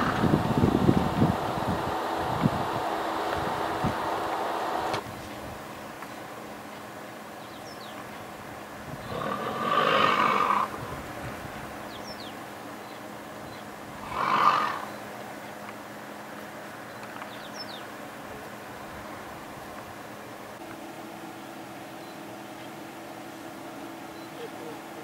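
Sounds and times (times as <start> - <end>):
lions growling: 9.0 - 10.8, 14.0 - 15.0.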